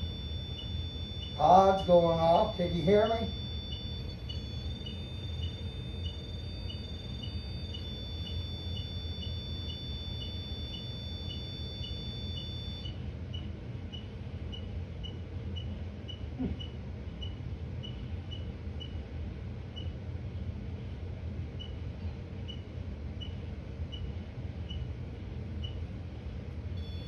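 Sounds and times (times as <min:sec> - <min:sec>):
short high beeps: 0:00.0 - 0:12.9
electronic alarm high tone: 0:00.0 - 0:13.0, 0:26.8 - 0:27.0.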